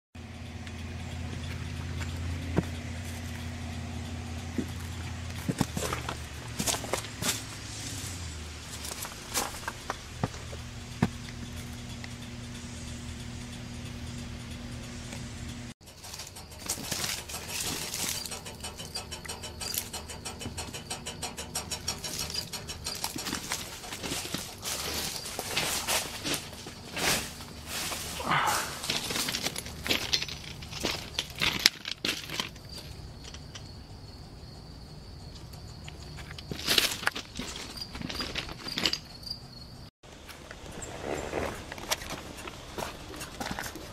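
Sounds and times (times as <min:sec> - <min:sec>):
low electrical hum: 0:00.2 - 0:37.7
relays clicking fast: 0:09.4 - 0:26.7.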